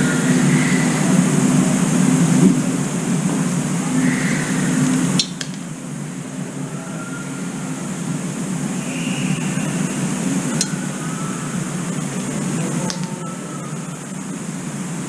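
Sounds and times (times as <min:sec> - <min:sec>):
low background hum: 0:00.0 - 0:15.0
sharp click: 0:05.2 - 0:05.6
faint bird chirps: 0:06.2 - 0:14.4.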